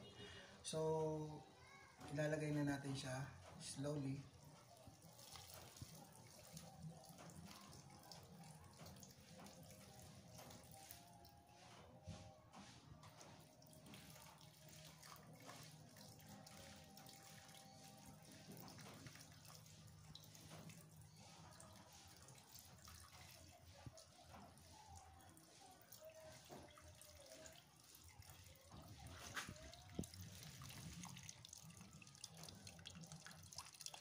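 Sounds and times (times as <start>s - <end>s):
liquid trickling through strainer: 2.0s - 34.0s.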